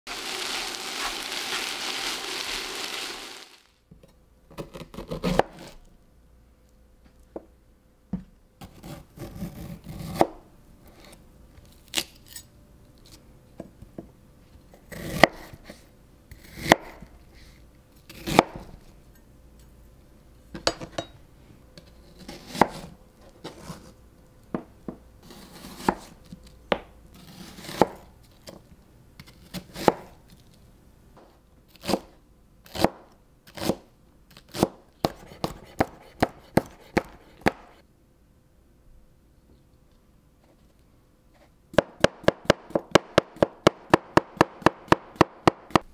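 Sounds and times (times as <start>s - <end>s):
meat sizzling in a frying pan: 0.1s - 3.7s
knife chopping on cutting board: 25.3s - 26.1s, 34.5s - 37.8s.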